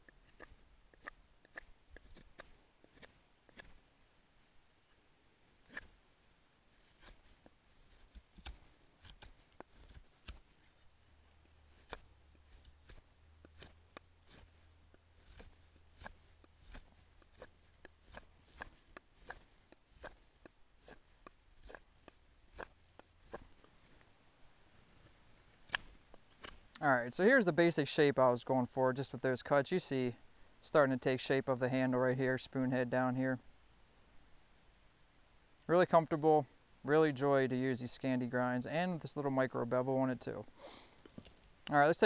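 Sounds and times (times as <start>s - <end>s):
knife carving wood: 0.0s - 3.9s, 5.6s - 6.0s, 6.7s - 24.2s, 24.8s - 26.8s.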